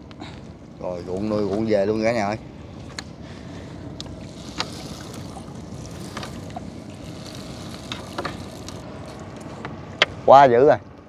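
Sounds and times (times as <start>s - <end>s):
boat motor running: 1.0s - 10.3s.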